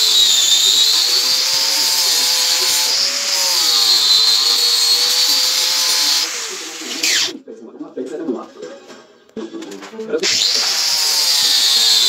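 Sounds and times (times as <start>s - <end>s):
angle grinder grinding metal: 0.0s - 7.3s, 10.2s - 12.0s.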